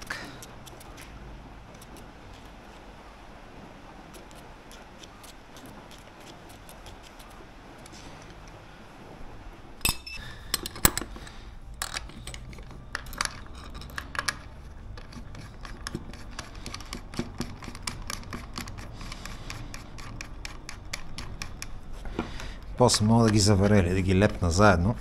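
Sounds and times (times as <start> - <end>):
metal parts clinking: 9.8 - 16.8.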